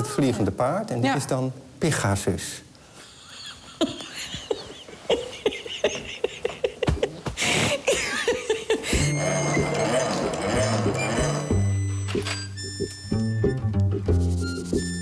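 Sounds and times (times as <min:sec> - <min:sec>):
person chuckling: 0:03.1 - 0:11.6
music: 0:09.0 - 0:15.0.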